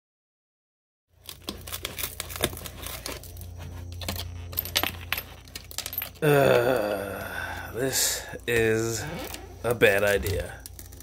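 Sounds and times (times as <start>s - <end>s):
glass shards clinking: 4.0s - 6.3s.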